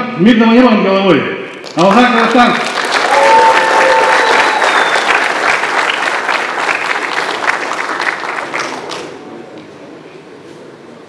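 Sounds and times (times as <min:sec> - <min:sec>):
audience applauding: 0:01.6 - 0:09.2.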